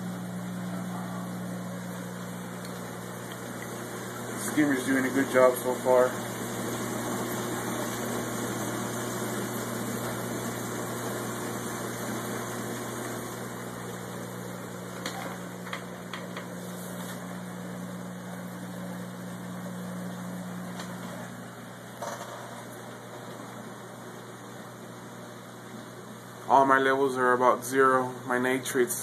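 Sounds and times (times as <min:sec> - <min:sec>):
bubbling running water: 0:00.0 - 0:21.9
pump humming: 0:00.0 - 0:29.0.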